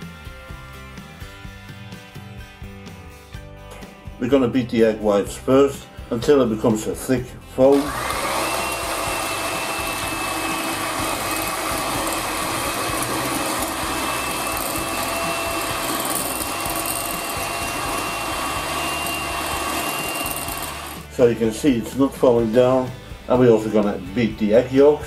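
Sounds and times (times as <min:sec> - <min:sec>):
electric hand mixer whine: 0:07.7 - 0:21.1.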